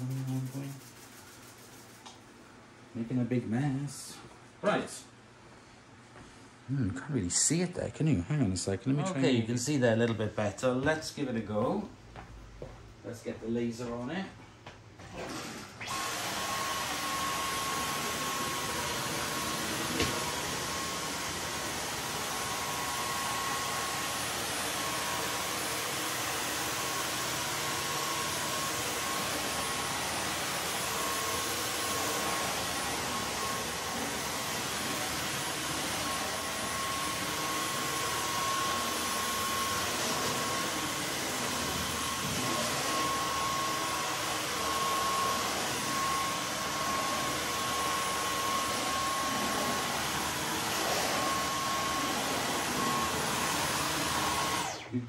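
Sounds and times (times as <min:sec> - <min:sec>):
stick vacuum running: 0:15.0 - 0:55.0.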